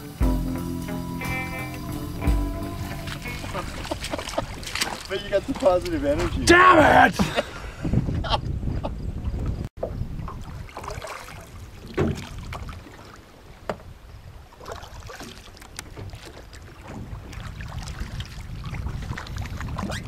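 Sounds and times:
water against boat hull: 0:02.9 - 0:06.5, 0:08.7 - 0:20.0
wind rumble on microphone: 0:07.2 - 0:20.0
boat knocks and bumps: 0:11.8 - 0:12.6, 0:13.6 - 0:13.9, 0:15.7 - 0:17.5.

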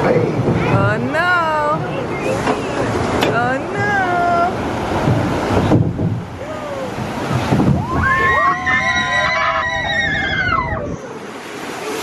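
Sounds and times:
water rushing around a boat: 0:00.0 - 0:12.0
voices sliding in pitch: 0:07.8 - 0:11.3.

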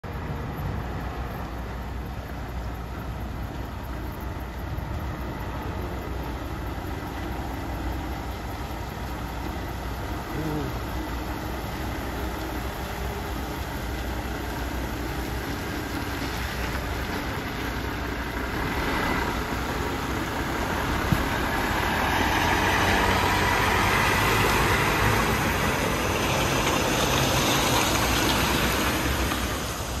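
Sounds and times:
diesel truck engine rumble: 0:00.0 - 0:30.0
tyres hissing on wet pavement: 0:00.2 - 0:30.0.

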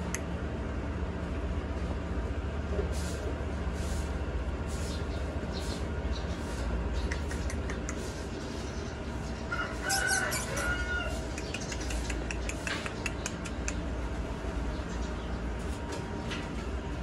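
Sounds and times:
steady low hum: 0:00.0 - 0:17.0
rooster crowing: 0:09.5 - 0:11.4.

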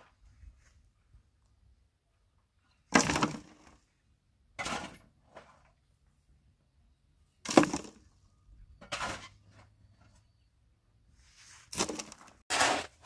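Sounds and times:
short scraping noises: 0:11.1 - 0:13.0.

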